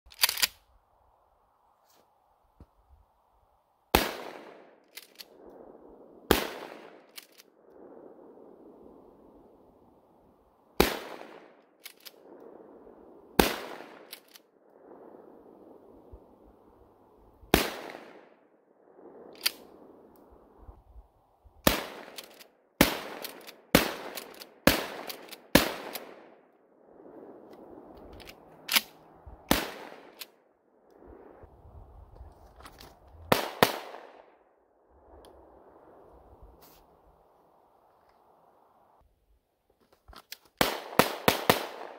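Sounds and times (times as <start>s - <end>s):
shotgun pump clacks: 0.1s - 0.6s
pistol shots: 33.3s - 34.2s, 40.6s - 41.9s.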